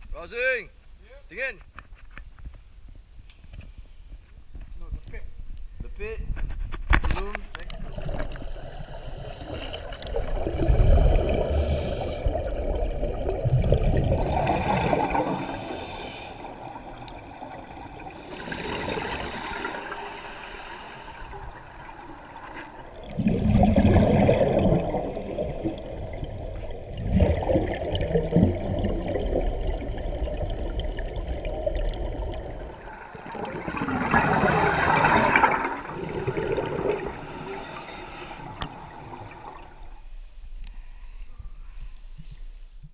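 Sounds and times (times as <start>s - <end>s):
regulator bubbles gurgling underwater: 7.5s - 40.0s.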